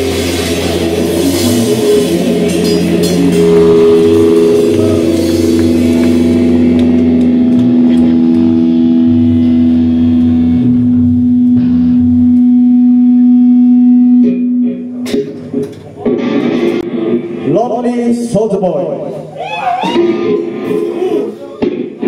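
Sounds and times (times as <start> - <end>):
cymbals: 0.0 - 12.4
bass guitar: 0.0 - 22.0
electric guitars ringing: 0.0 - 22.0.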